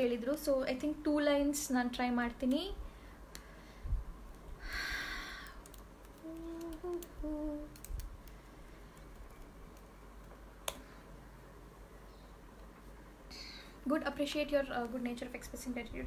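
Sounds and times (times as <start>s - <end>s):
woman softly humming: 6.2s - 7.9s.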